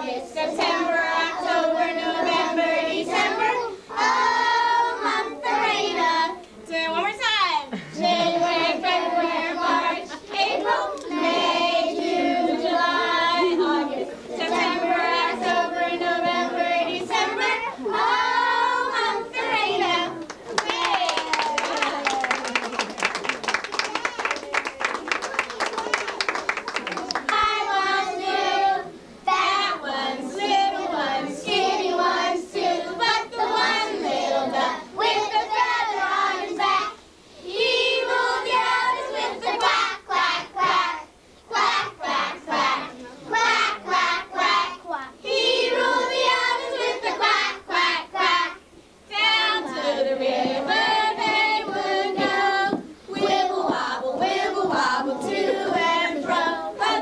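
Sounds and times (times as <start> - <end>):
young children singing: 0.0 - 6.4, 7.7 - 22.6, 23.5 - 57.0.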